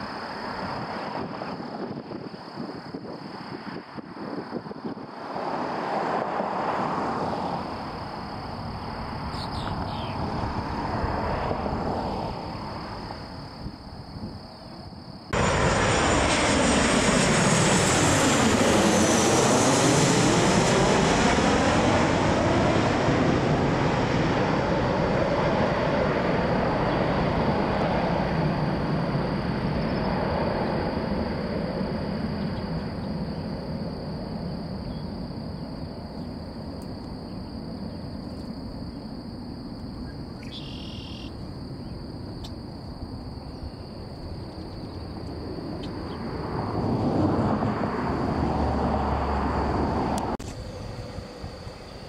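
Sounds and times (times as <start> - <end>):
distant jet engine: 0.0 - 52.0
jet passing low overhead: 0.0 - 52.0
jet engine whistle: 40.4 - 41.4.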